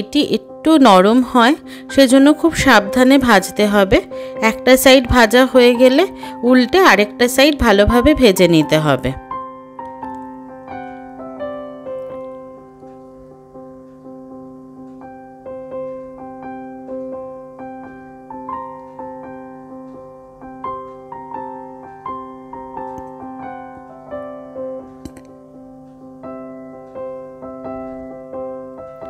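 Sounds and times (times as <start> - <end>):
piano music: 0.0 - 29.0.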